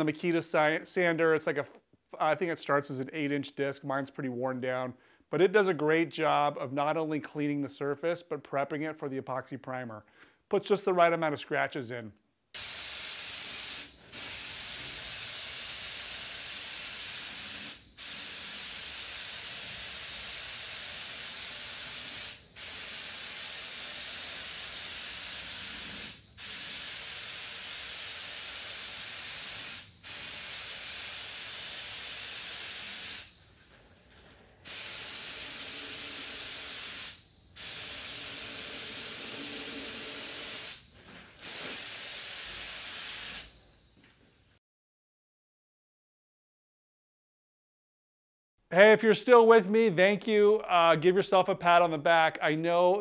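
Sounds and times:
spray gun hissing: 12.6 - 33.8, 34.6 - 43.6.

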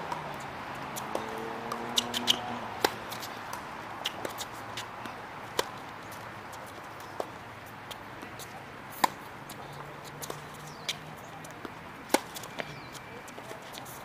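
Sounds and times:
tennis ball struck by racket: 0.9 - 4.9, 5.5 - 5.8, 8.9 - 9.2, 12.1 - 12.6.

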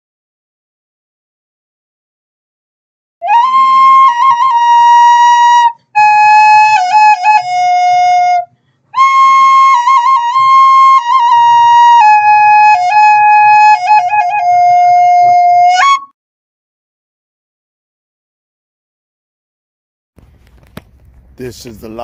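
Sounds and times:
solo flute melody: 3.2 - 16.2.

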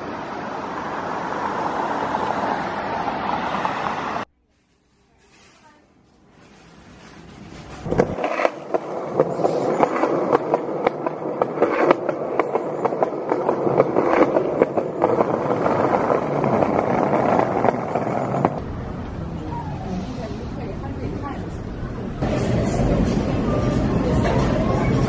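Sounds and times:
skateboard wheels rolling on concrete: 6.4 - 19.8
skateboard wheels clacking on joints: 7.9 - 18.6.

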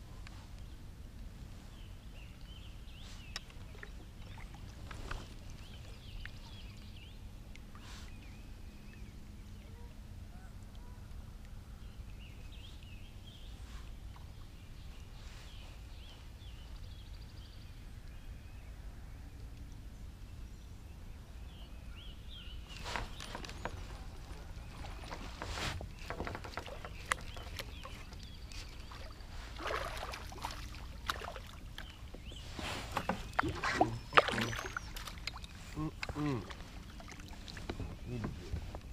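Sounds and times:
low steady rumble: 0.0 - 38.9
faint bird chirps: 26.0 - 37.2.

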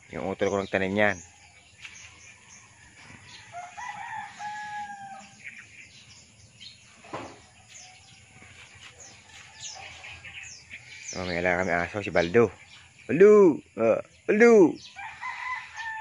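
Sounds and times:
small birds chirping: 0.0 - 16.0
rooster crowing: 2.5 - 5.5, 14.9 - 16.0.

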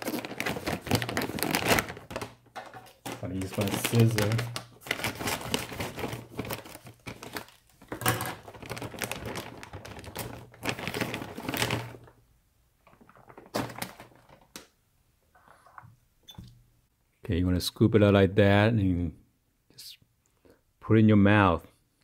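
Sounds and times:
plastic bag crinkling: 0.0 - 12.2, 12.8 - 14.6.

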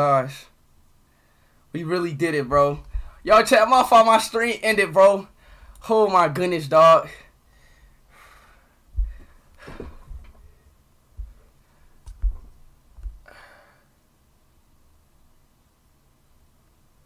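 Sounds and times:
dull low thuds: 2.6 - 3.2, 8.9 - 10.6, 11.2 - 11.5, 12.1 - 13.3
man sighing and exhaling: 13.2 - 13.9.

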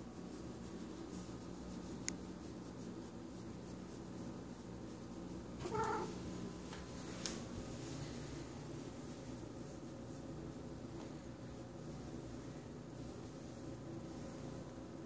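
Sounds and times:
hand stroking fur: 0.0 - 15.0
low steady hum: 0.0 - 15.0
cat meowing: 5.6 - 6.1.

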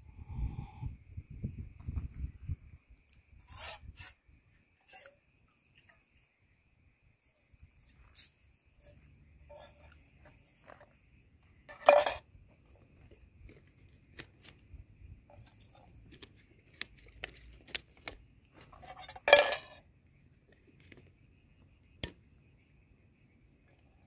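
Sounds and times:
metal cook pot clanking: 11.7 - 12.2.

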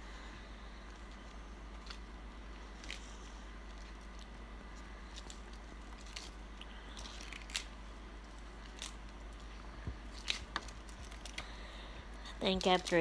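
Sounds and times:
cabbage leaves tearing: 5.0 - 7.8, 8.4 - 9.4, 10.0 - 11.5.

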